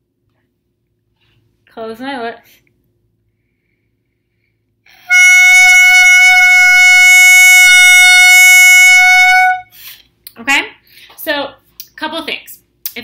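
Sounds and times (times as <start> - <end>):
clarinet mouthpiece high note: 5.1 - 9.8.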